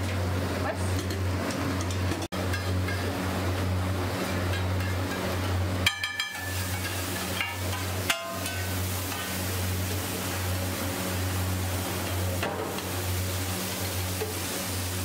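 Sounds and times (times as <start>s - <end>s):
metal spatula clanking on griddle: 1.0s - 3.2s, 4.3s - 9.4s
vegetables sizzling: 1.2s - 15.0s.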